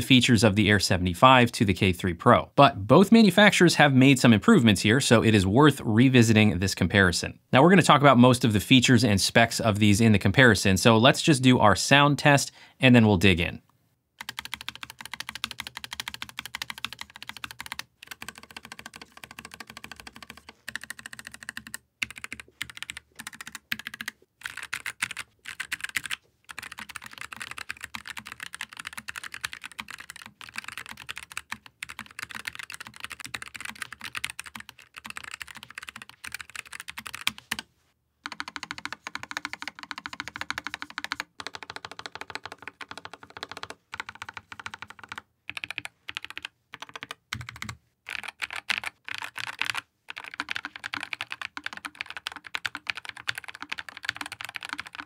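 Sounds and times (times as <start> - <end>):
typing on mechanical keyboard: 14.2 - 37.6, 38.2 - 55.0.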